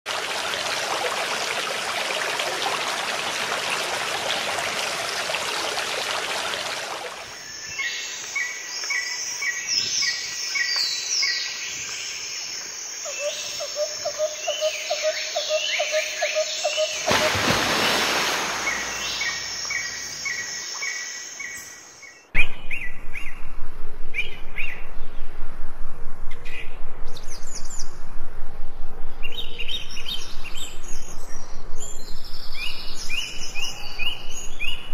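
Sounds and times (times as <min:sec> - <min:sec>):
water rushing in a stone channel: 0:00.1 - 0:07.4, 0:17.0 - 0:19.4.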